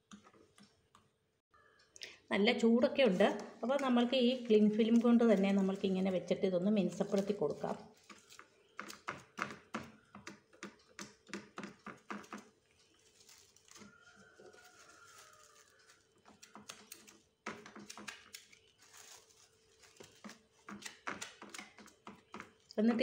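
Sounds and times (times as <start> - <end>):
cling film crinkling: 3.0 - 9.6, 11.7 - 22.8.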